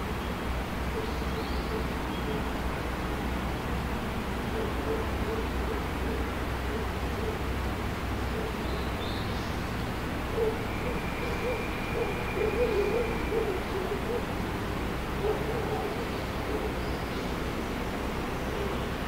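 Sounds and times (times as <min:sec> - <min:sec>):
pigeon cooing: 0:10.4 - 0:14.4, 0:15.2 - 0:16.8.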